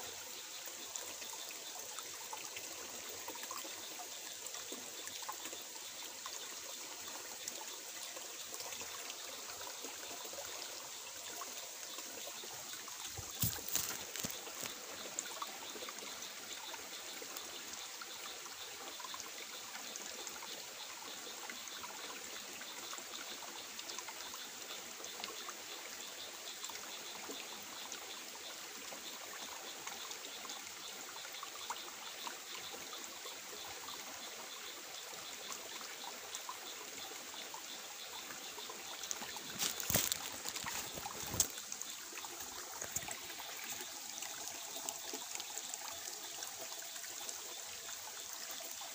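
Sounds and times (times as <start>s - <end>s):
stream trickling over rocks: 0.0s - 48.9s.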